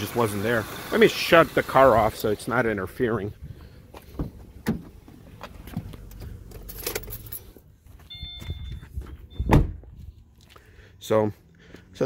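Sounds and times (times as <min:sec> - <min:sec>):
car engine idling: 0:00.0 - 0:08.0
car door shutting: 0:04.2 - 0:05.0, 0:09.4 - 0:09.9
keys jangling: 0:06.4 - 0:07.6
electronic chime tones: 0:08.1 - 0:09.5.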